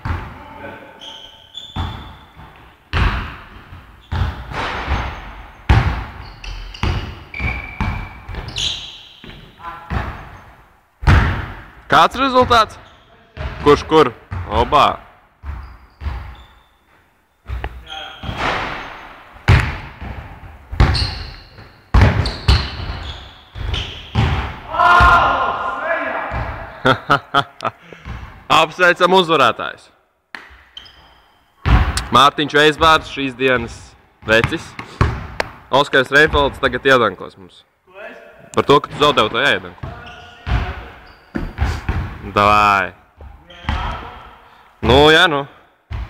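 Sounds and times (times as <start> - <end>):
basketball bouncing on court: 0.0 - 0.4, 1.6 - 8.6, 9.2 - 10.4, 11.0 - 11.7, 13.4 - 14.7, 15.4 - 16.5, 17.5 - 25.3, 26.2 - 26.8, 28.0 - 28.4, 31.6 - 32.0, 34.2 - 35.6, 38.9 - 42.3, 43.2 - 44.0
shoe squeaks: 0.9 - 2.6, 3.9 - 4.3, 4.9 - 10.6, 12.8 - 13.2, 15.5 - 19.2, 20.8 - 24.3, 30.6 - 31.5, 39.8 - 41.9.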